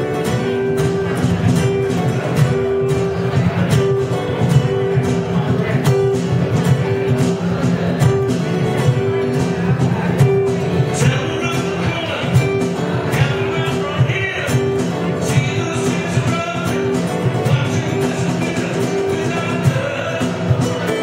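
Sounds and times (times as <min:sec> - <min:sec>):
cajon beat: 0:00.0 - 0:21.0
strummed acoustic guitar: 0:00.0 - 0:21.0
man singing into a microphone: 0:10.8 - 0:21.0.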